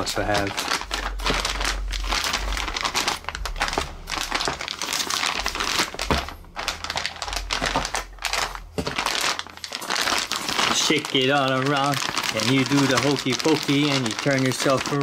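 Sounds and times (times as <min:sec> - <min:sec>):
plastic bag crinkling: 0:00.0 - 0:15.0.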